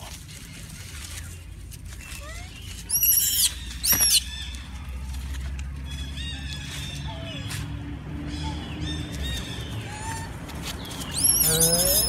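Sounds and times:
monkey screaming: 2.9s - 4.2s, 11.1s - 12.0s.

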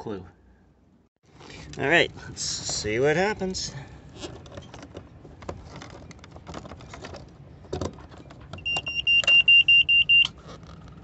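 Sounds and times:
alarm buzzer pulsing beep: 8.6s - 10.3s.

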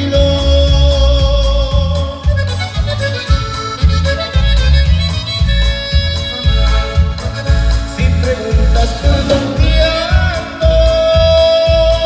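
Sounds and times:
accordion melody: 0.0s - 12.0s
drums with cymbal strikes: 0.0s - 12.0s
electric bass: 0.0s - 12.0s.

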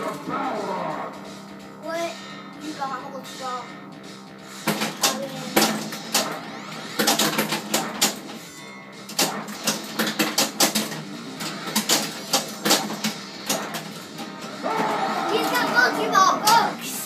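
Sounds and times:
pinball machine clacks: 4.6s - 8.4s, 9.0s - 14.4s.

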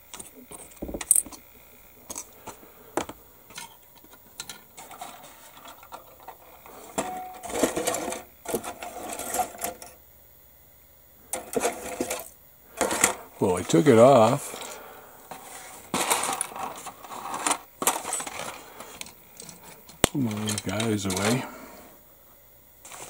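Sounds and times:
plastic parts clicking and rattling: 2.1s - 10.0s, 11.3s - 13.8s, 15.3s - 21.5s.

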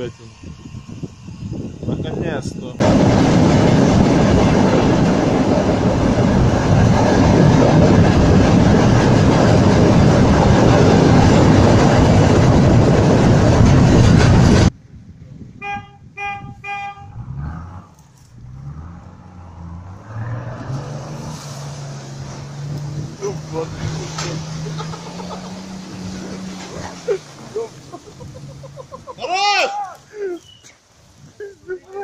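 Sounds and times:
low engine hum: 2.8s - 29.2s
vehicle horn toots: 15.5s - 17.3s
vehicle rushing through water and mud: 17.2s - 29.8s.

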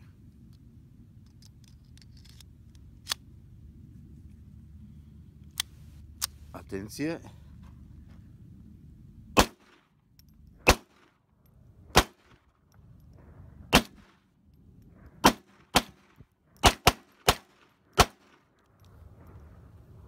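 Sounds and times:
pistol shots: 9.4s - 9.8s, 10.6s - 11.1s, 11.9s - 12.4s, 13.7s - 14.1s, 15.2s - 18.4s.

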